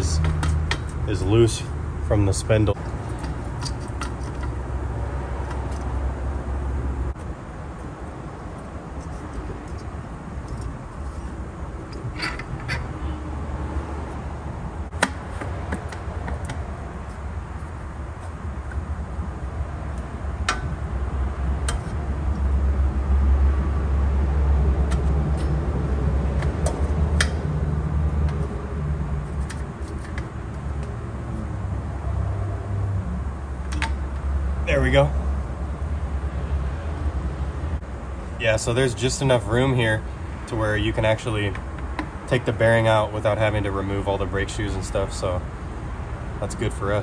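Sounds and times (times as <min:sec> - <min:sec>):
low mechanical rumble with hiss: 0:00.0 - 0:47.0
steady background noise: 0:00.0 - 0:47.0.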